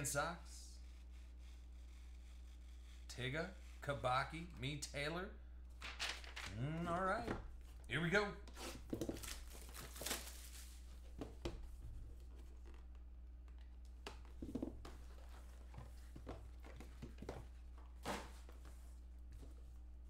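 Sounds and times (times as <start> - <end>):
cardboard rustling and scraping: 14.2 - 19.9.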